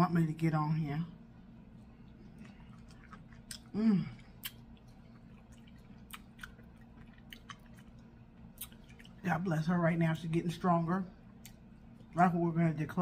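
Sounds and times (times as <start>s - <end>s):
wet chewing and lip smacks: 1.7s - 9.2s
person humming mmm: 3.5s - 4.5s.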